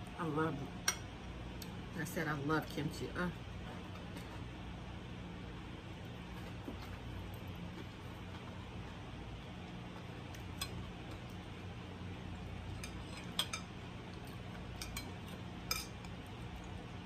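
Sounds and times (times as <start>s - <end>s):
steady low hum: 0.0s - 17.0s
chopsticks clinking on ceramic: 12.7s - 13.8s, 14.7s - 16.2s.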